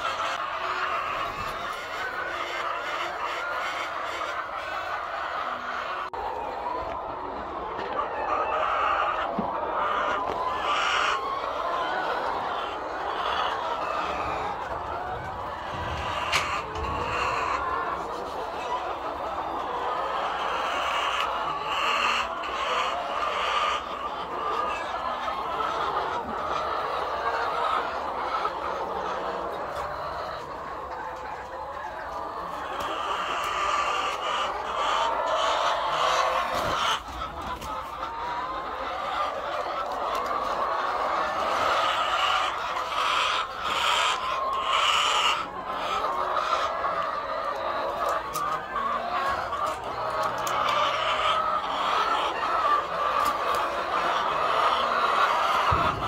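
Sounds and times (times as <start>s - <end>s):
hens clucking: 0.0s - 56.0s.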